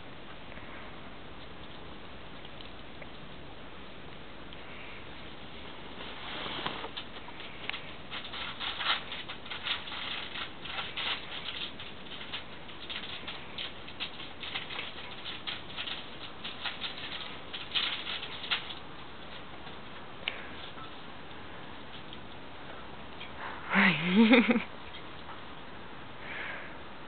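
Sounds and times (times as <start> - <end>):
paws scuffling on newspaper: 5.9 - 21.0
claws clicking on tiled floor: 6.8 - 21.0.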